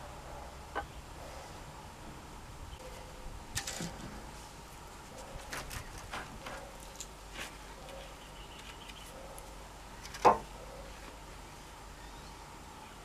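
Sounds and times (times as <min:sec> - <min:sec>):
taps and scrapes in dry dirt: 0:05.1 - 0:10.5.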